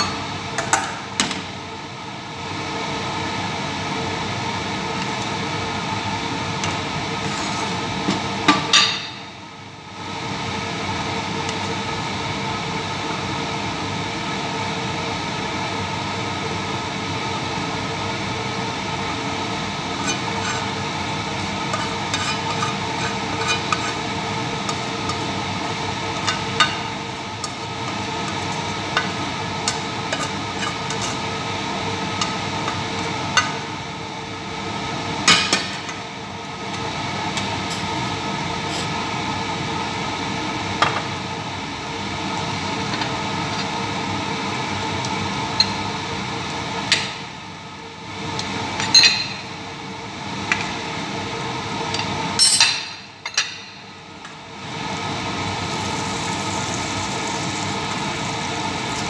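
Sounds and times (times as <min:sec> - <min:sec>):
utensil scraping a frying pan: 0:19.9 - 0:20.8, 0:21.4 - 0:25.2, 0:30.1 - 0:31.3.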